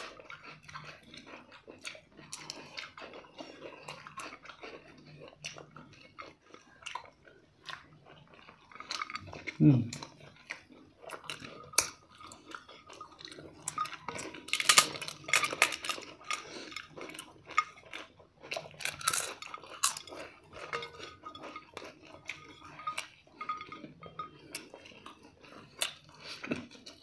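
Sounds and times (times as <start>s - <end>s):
chewing: 0.0s - 27.0s
hands and food clinking on plates: 10.4s - 27.0s.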